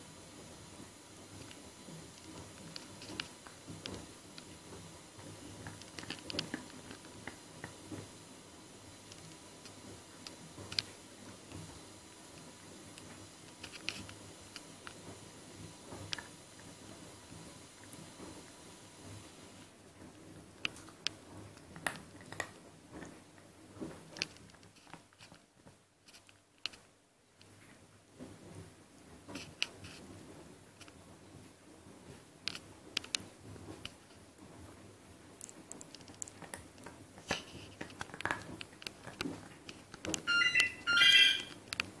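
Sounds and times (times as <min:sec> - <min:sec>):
puppy chewing a bone: 0:00.5 - 0:19.4, 0:20.4 - 0:26.7, 0:32.5 - 0:40.4
high-pitched squeaks: 0:40.2 - 0:41.6.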